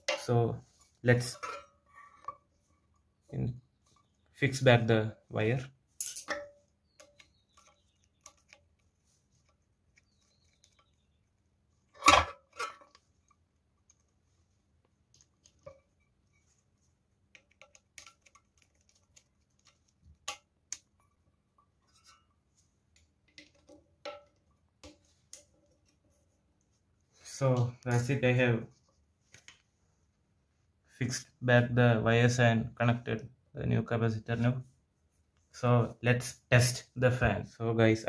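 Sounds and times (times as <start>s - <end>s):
small clicks and knocks: 6.0s - 14.2s, 14.8s - 16.6s, 17.3s - 26.7s.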